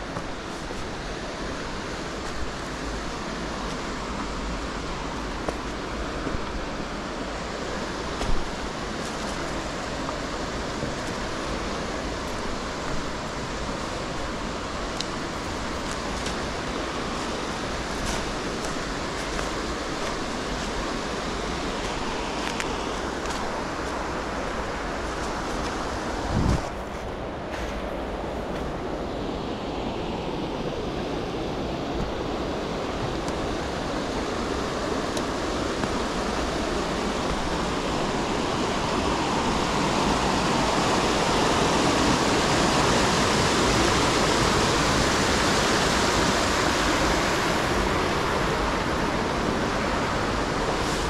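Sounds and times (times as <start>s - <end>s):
waterfall rushing: 0.0s - 26.8s, 29.2s - 51.0s.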